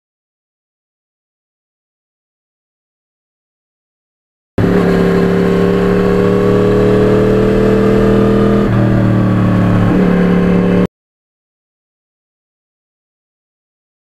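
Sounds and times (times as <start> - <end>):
motorcycle engine running: 4.6 - 10.9.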